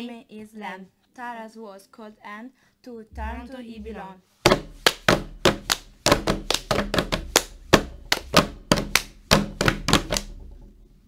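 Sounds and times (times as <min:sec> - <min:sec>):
low bass note: 0:03.2 - 0:04.2
sharp percussive drum hits: 0:03.2 - 0:10.4.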